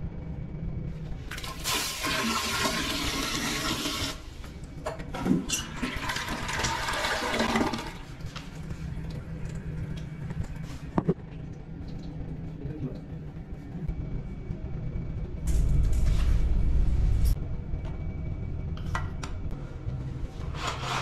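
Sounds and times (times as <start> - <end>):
toilet flushing: 1.3 - 4.4, 5.1 - 8.3.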